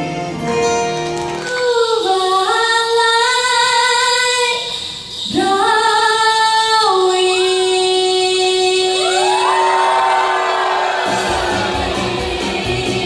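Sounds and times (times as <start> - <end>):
musical accompaniment: 0.0 - 2.3, 10.5 - 13.0.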